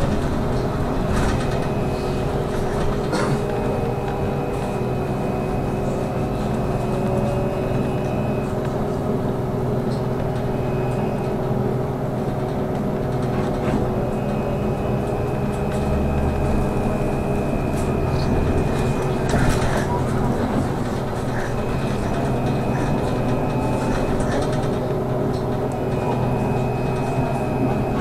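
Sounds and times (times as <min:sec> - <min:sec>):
tyre and road rumble: 0:00.0 - 0:09.2
electric drive whine: 0:00.0 - 0:28.0
high whine: 0:00.0 - 0:28.0.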